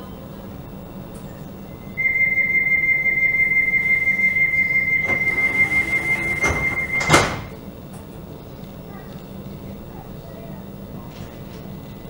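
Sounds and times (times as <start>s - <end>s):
train door warning beep: 2.0s - 7.6s.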